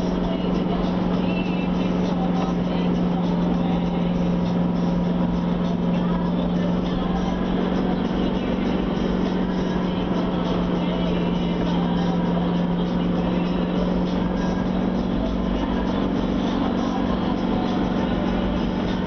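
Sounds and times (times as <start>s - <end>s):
tyre and road noise: 0.0s - 19.0s
vehicle engine running: 0.0s - 19.0s.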